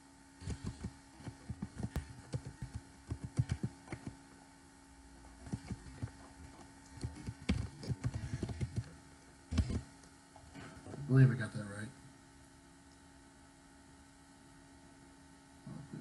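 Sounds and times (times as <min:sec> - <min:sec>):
faint steady hum: 0:00.0 - 0:16.0
computer keyboard typing: 0:00.4 - 0:04.2, 0:05.4 - 0:08.9, 0:09.5 - 0:09.8.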